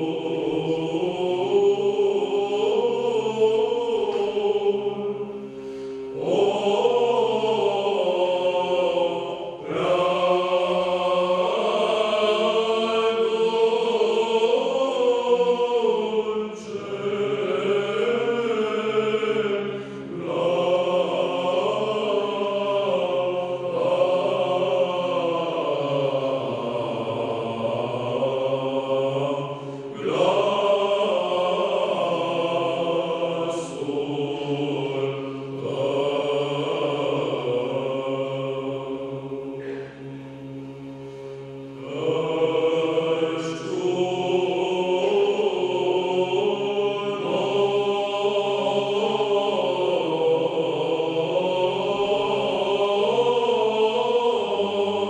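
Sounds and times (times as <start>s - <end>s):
male choir chanting a cappella: 0.0s - 55.0s
singers breathing: 5.3s - 6.2s, 19.7s - 20.1s, 29.5s - 30.0s, 39.6s - 41.7s.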